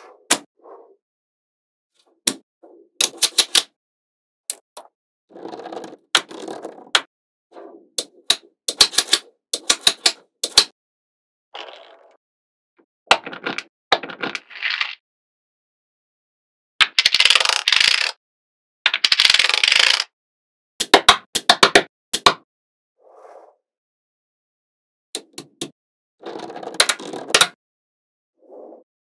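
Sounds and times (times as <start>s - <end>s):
rattle of many balls: 5.3s - 7.1s, 13.1s - 15.0s, 16.8s - 18.2s, 18.9s - 20.1s.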